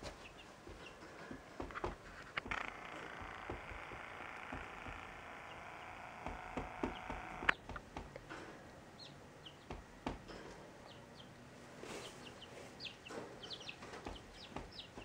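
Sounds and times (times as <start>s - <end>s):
chicks peeping: 0.0s - 7.8s, 8.9s - 15.0s
sharp taps: 1.6s - 8.3s.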